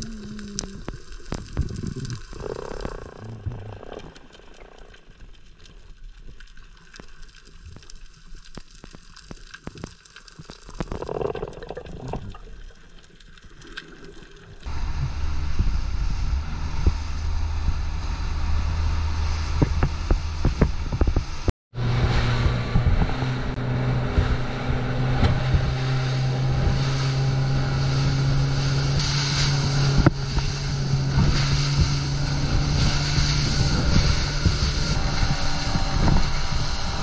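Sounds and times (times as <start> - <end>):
muffled underwater clicks: 0.0 - 14.3
motorboat engine hum: 14.7 - 37.0
wind and spray rushing: 14.7 - 37.0.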